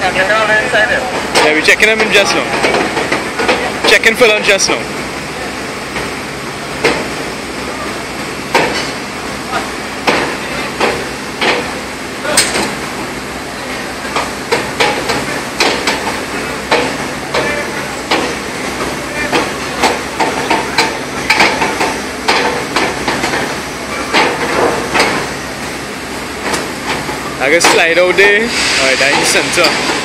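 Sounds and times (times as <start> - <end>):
machinery hum: 0.0 - 30.0
sharp knocks: 8.5 - 9.0, 10.0 - 11.7, 14.2 - 18.4, 19.3 - 23.5, 24.1 - 25.3.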